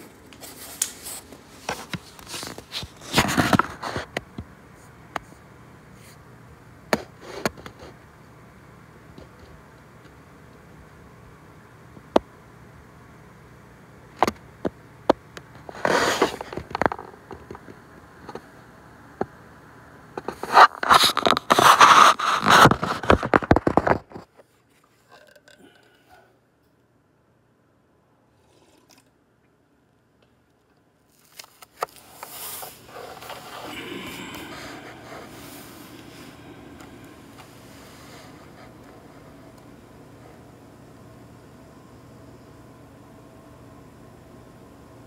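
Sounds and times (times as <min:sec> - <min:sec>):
scraping and rustling: 0:31.1 - 0:39.4.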